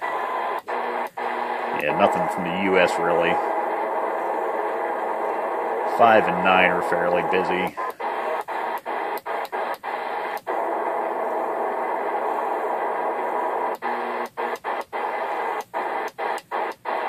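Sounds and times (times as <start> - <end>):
radio static: 0.0 - 17.0.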